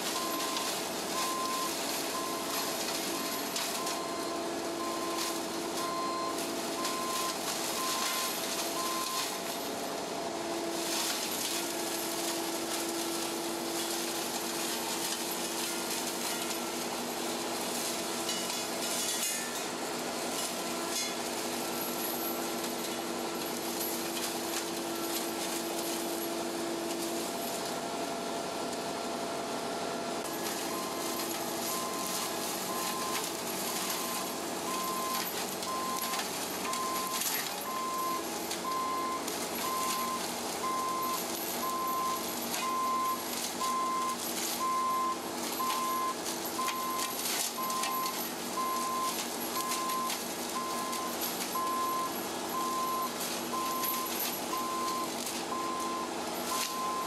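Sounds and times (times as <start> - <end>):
mulcher grinding through brush: 0.0 - 57.0
short beep: 0.2 - 9.4, 30.6 - 57.0.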